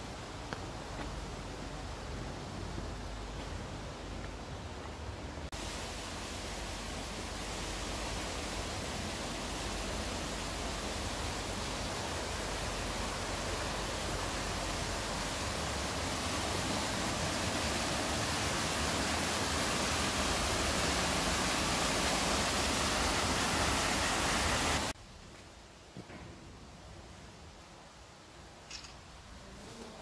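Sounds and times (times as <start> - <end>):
falling water rushing: 5.4 - 25.0.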